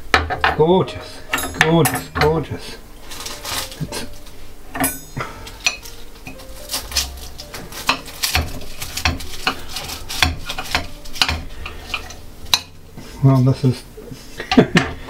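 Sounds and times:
cutlery scraping a plate: 0:04.8 - 0:12.8.

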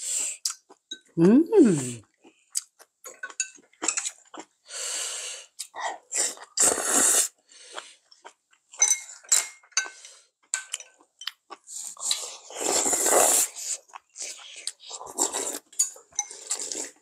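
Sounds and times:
loud slurp of broth: 0:06.1 - 0:07.4, 0:12.0 - 0:13.8, 0:15.0 - 0:15.7
chopsticks clinking on bowls: 0:08.7 - 0:11.4, 0:15.7 - 0:16.8.

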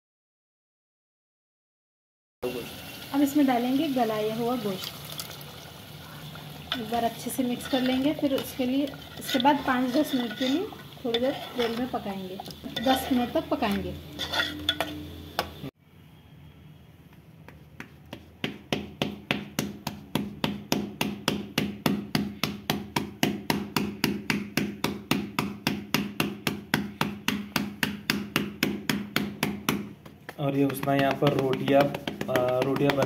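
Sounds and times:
hand slapping dough on a board: 0:17.1 - 0:33.0.

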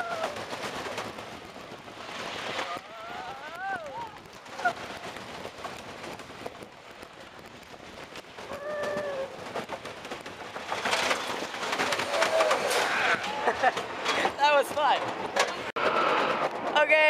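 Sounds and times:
roller coaster rattling on track: 0:00.0 - 0:17.0
riders screaming: 0:02.6 - 0:04.8, 0:08.5 - 0:09.4, 0:11.8 - 0:13.7.

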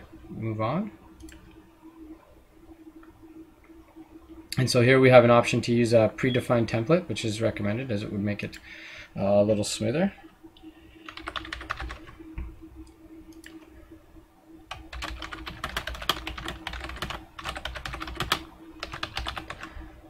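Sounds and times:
faint steady hum: 0:00.0 - 0:20.0
typing on a computer keyboard: 0:11.1 - 0:12.1, 0:14.7 - 0:19.7.

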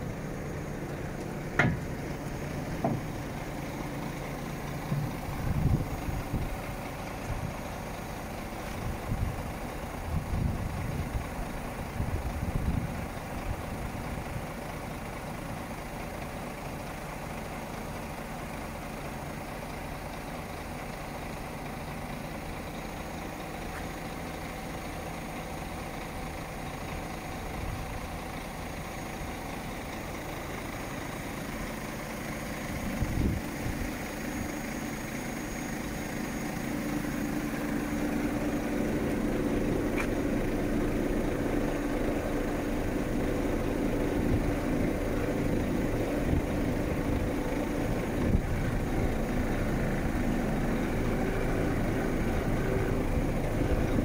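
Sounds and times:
diesel truck engine idling: 0:00.0 - 0:54.0
thump: 0:01.6 - 0:01.9, 0:02.8 - 0:03.1.

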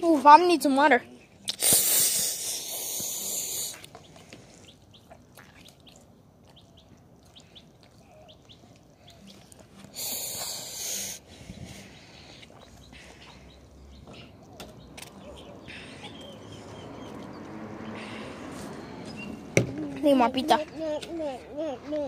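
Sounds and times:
loud rushing hisses: 0:01.6 - 0:03.8, 0:09.9 - 0:11.3.

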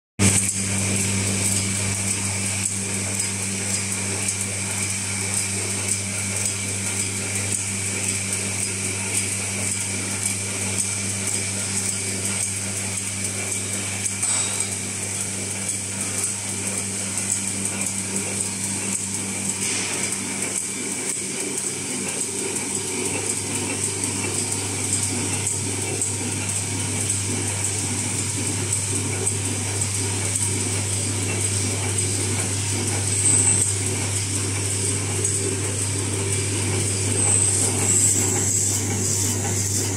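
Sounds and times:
mechanical clatter of machine: 0:00.2 - 0:39.9
low motor hum: 0:22.2 - 0:39.9.

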